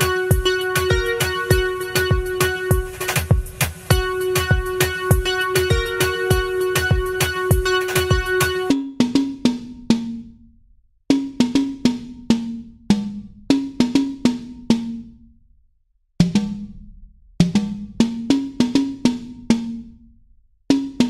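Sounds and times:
drum hits: 0:00.0 - 0:09.7.

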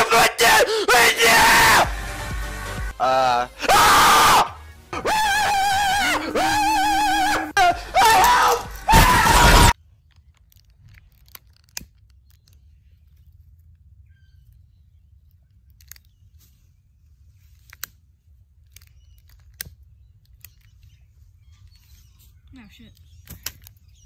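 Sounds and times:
people screaming: 0:00.0 - 0:01.9, 0:03.0 - 0:09.8
faint outdoor background: 0:00.0 - 0:24.0.

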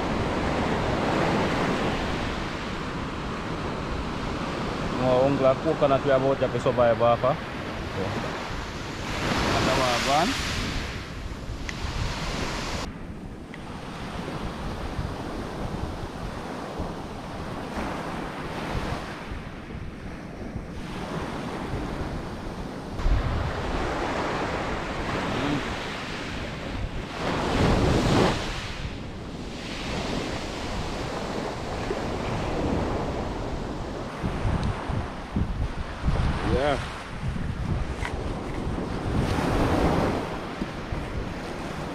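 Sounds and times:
wind buffeting microphone: 0:00.0 - 0:41.9
sea waves on pebble beach: 0:07.7 - 0:11.2.

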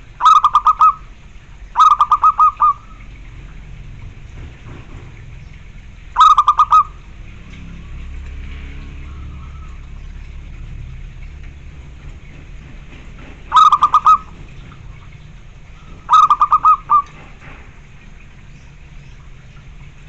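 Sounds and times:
dove cooing: 0:00.2 - 0:01.1, 0:01.7 - 0:03.2, 0:06.2 - 0:07.0, 0:13.5 - 0:14.4, 0:15.8 - 0:17.3.

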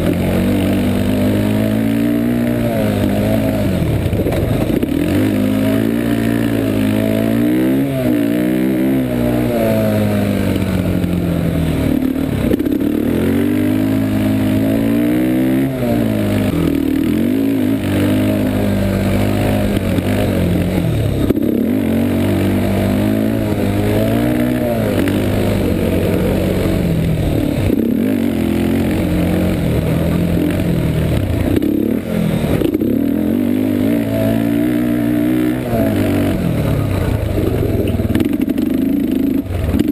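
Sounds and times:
atv engine revving: 0:00.0 - 0:39.9.

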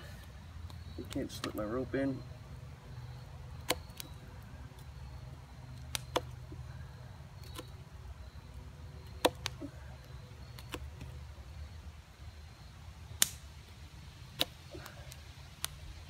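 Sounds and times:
knife carving wood clicks: 0:03.6 - 0:04.2, 0:05.8 - 0:06.4, 0:09.0 - 0:09.6, 0:10.5 - 0:11.1.

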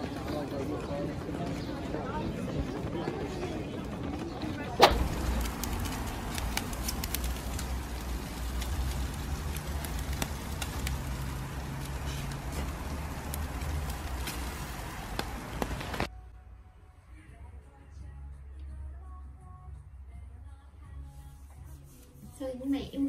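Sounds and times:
low rumble: 0:04.8 - 0:16.0
fat crackling and popping: 0:04.8 - 0:16.1
meat sizzling on a grill: 0:05.0 - 0:16.1.

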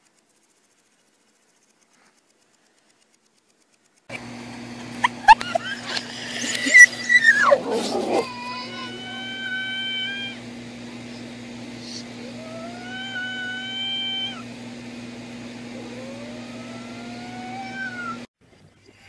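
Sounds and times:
steady low hum: 0:00.0 - 0:19.0
cat yowling: 0:06.2 - 0:10.4, 0:12.2 - 0:14.5, 0:15.7 - 0:18.3.

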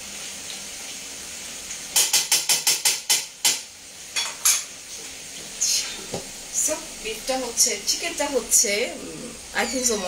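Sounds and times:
frying hiss: 0:00.0 - 0:10.0.

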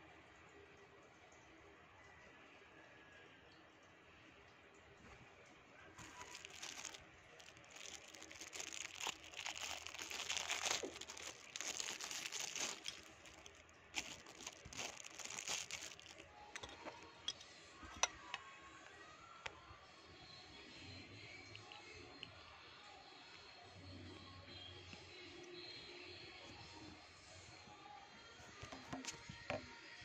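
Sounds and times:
plastic packaging crinkling: 0:06.0 - 0:16.7.

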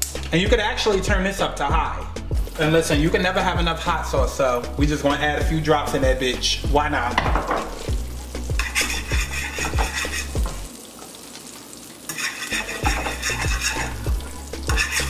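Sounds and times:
oil and garlic sizzling in pan: 0:02.2 - 0:15.0
fork scraping a pan: 0:07.7 - 0:10.7, 0:12.1 - 0:15.0.

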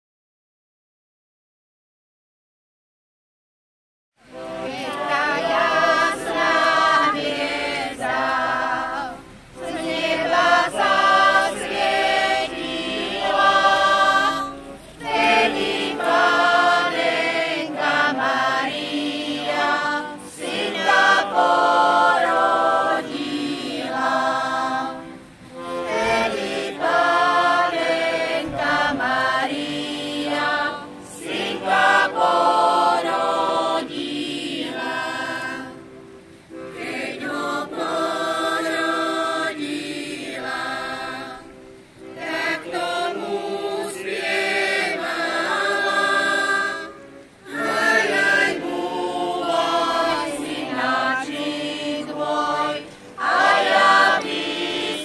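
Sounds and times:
folk choir singing a cappella: 0:04.2 - 0:55.0.

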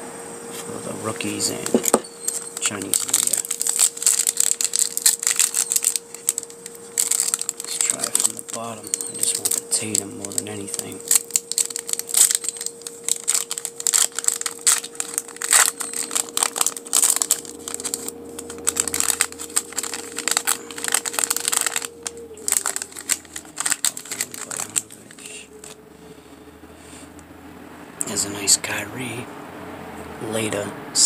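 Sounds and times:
plastic wrapper crinkling: 0:01.1 - 0:25.8.

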